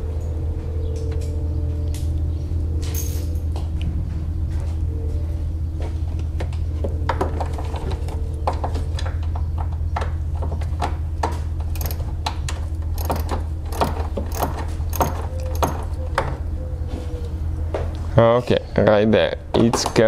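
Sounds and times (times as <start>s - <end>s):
steady low hum: 0.0s - 19.6s
hand ratchet clicking: 11.7s - 12.1s, 12.9s - 16.0s.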